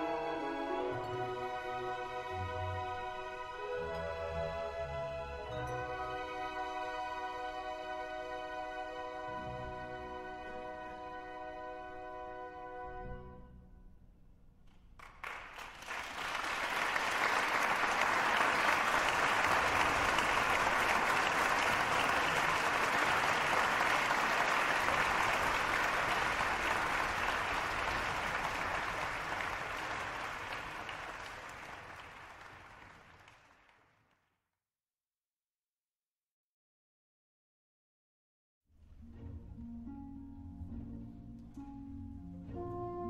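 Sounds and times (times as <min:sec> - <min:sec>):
applause: 0:14.7 - 0:34.3.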